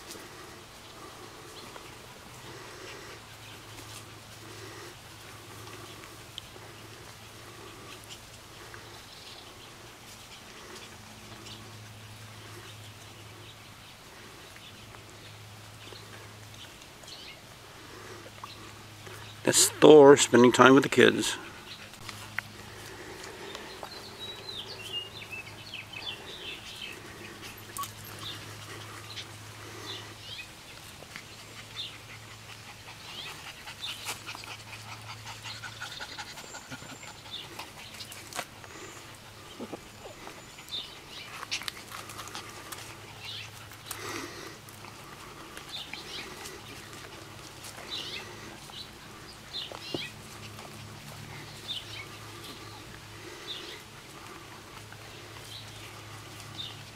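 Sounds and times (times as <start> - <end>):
puppies yipping and squealing: 18.5 - 56.9.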